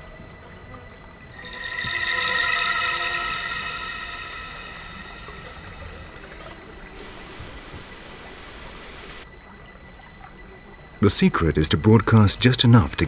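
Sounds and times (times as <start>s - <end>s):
thin high steady tones: 1.2s - 7.7s
even hiss: 1.3s - 9.2s.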